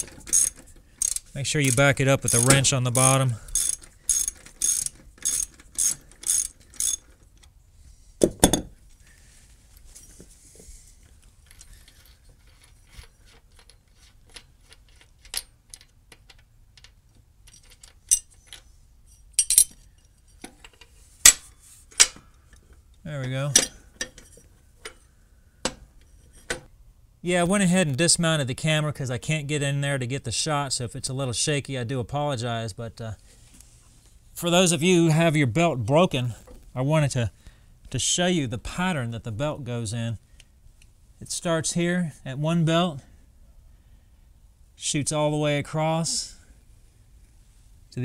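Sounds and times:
socket ratchet clicking: 0:00.0 - 0:02.7, 0:03.5 - 0:07.2
metal clunk: 0:08.2 - 0:08.8
metal clinks: 0:17.5 - 0:20.4.

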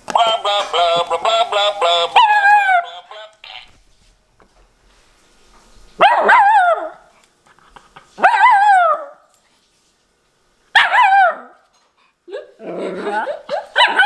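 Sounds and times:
puppy barking: 0:06.0 - 0:07.0, 0:10.8 - 0:11.6, 0:13.5 - 0:14.0.

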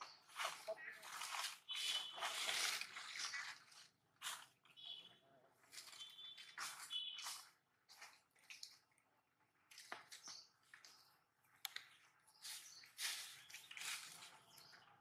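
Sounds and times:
monkeys chewing and rustling: 0:00.1 - 0:04.7.

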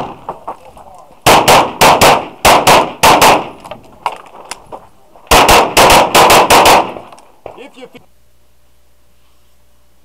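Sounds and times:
pistol shots: 0:01.2 - 0:03.7, 0:05.3 - 0:07.1.

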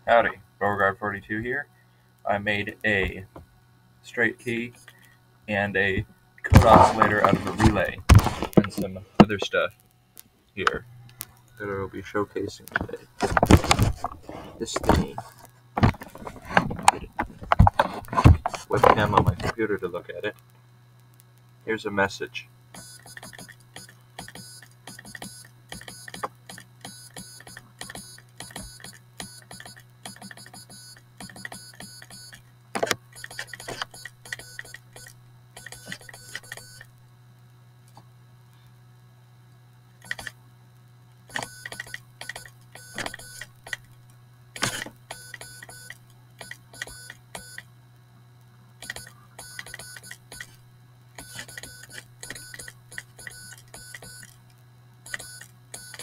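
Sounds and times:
steady low hum: 0:00.0 - 0:56.0
oscillator buzzing morse code: 0:04.2 - 0:05.1, 0:22.2 - 0:36.9, 0:40.0 - 0:40.4, 0:41.3 - 0:43.9, 0:44.5 - 0:47.7, 0:48.8 - 0:54.4, 0:55.0 - 0:56.0.

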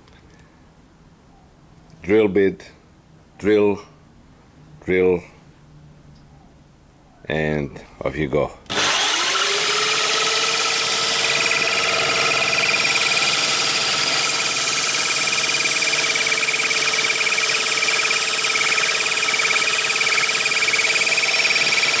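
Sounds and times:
drill motor whine: 0:08.7 - 0:22.0.

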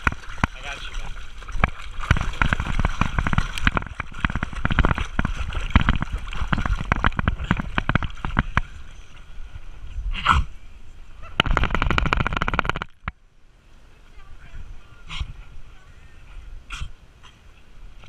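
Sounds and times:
dog paddling in splashing water: 0:00.0 - 0:09.8.

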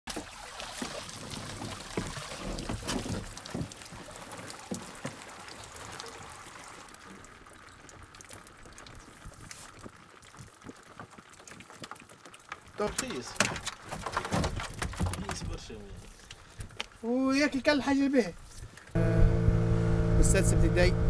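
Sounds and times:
water pouring and trickling: 0:00.1 - 0:19.0
knocks and rustles: 0:12.9 - 0:15.8.

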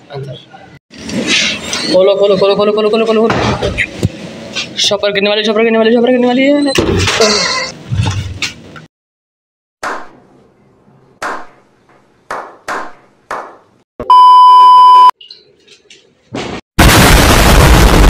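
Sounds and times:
censor bleep: 0:14.0 - 0:15.2
loud explosion blast: 0:16.8 - 0:18.0.

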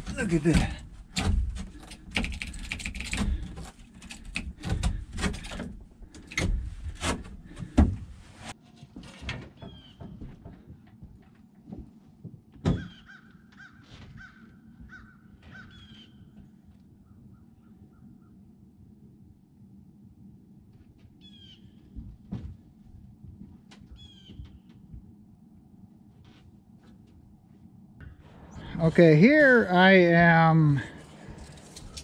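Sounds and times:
knocks and clatter on wood: 0:00.0 - 0:08.2, 0:09.0 - 0:12.9.

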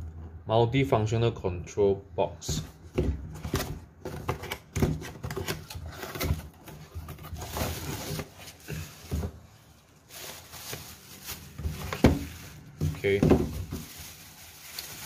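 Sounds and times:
cardboard box knocks and scrapes: 0:02.5 - 0:09.4, 0:11.7 - 0:13.9
plastic wrapping rustling: 0:03.3 - 0:15.0.

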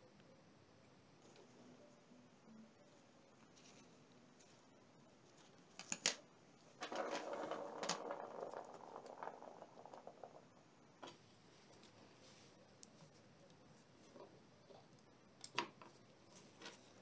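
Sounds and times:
nuts scraping on plastic: 0:06.8 - 0:11.2.

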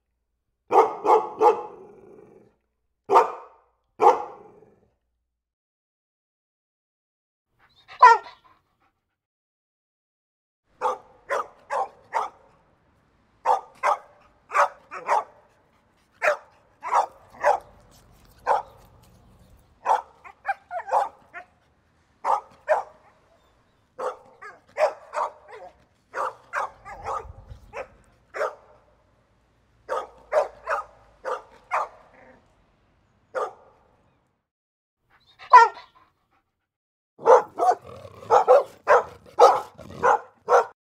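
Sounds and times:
dog barking: 0:00.7 - 0:02.2, 0:03.1 - 0:04.8, 0:07.9 - 0:08.4, 0:10.8 - 0:12.6, 0:13.4 - 0:15.6, 0:16.2 - 0:17.8, 0:18.4 - 0:18.9, 0:19.8 - 0:21.5, 0:22.2 - 0:23.2, 0:24.0 - 0:28.9, 0:29.9 - 0:32.4, 0:33.3 - 0:33.8, 0:35.5 - 0:36.0, 0:37.2 - 0:40.8.

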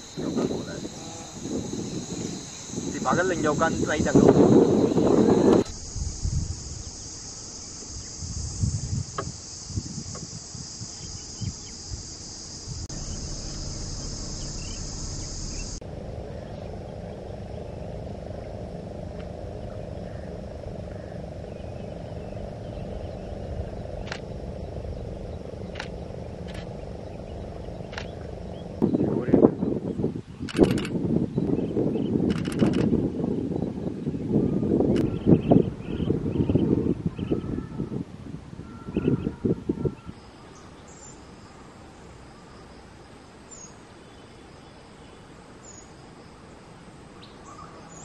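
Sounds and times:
wind bumps on microphone: 0:00.0 - 0:07.0, 0:07.8 - 0:15.8, 0:20.9 - 0:40.2
high-pitched insect drone: 0:00.0 - 0:48.0
low background hum: 0:12.8 - 0:29.5.

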